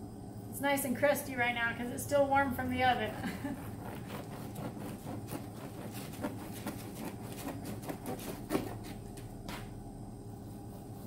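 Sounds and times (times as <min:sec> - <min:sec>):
knife sawing through crusty bread: 0:03.4 - 0:09.0.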